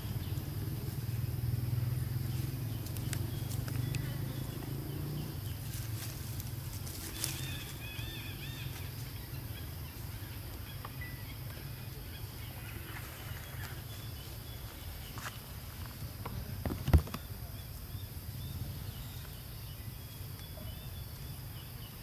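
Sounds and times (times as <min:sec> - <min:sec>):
faint ticks and rustles: 0:00.1 - 0:12.0
high chirping animal calls: 0:06.8 - 0:15.4.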